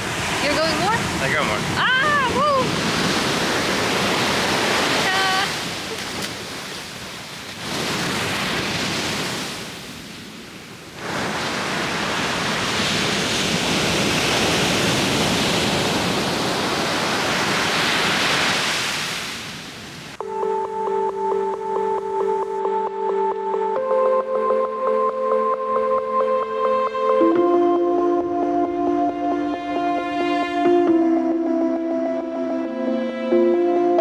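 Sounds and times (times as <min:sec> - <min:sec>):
waves breaking on beach: 0:00.0 - 0:20.2
music: 0:20.2 - 0:34.0.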